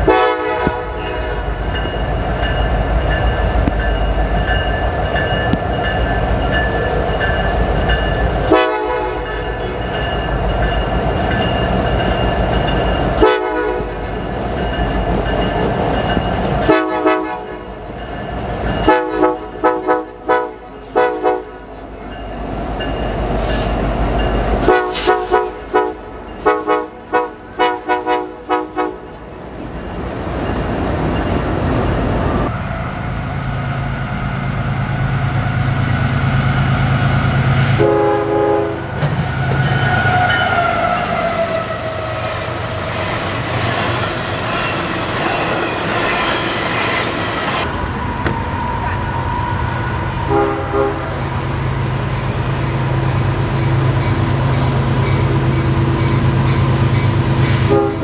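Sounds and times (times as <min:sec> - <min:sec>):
locomotive air horn blasts: 0:00.0 - 0:01.6, 0:08.4 - 0:09.5, 0:13.2 - 0:14.0, 0:16.6 - 0:17.7, 0:18.8 - 0:21.6, 0:24.6 - 0:29.1, 0:37.7 - 0:41.1, 0:50.2 - 0:51.2, 0:57.6 - 0:58.0
train rumble: 0:00.0 - 0:58.0.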